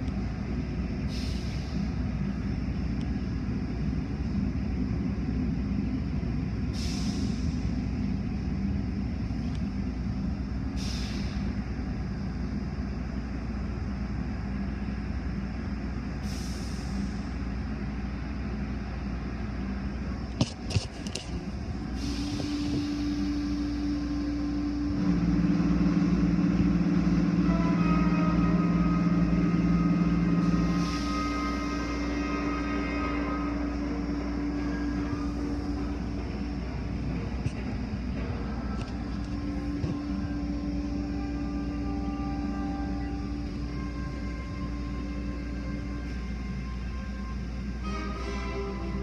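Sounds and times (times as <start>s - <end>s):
car wash water and machinery rumble: 0.0s - 49.0s
steady hum: 0.0s - 49.0s
short hisses: 10.8s - 11.5s.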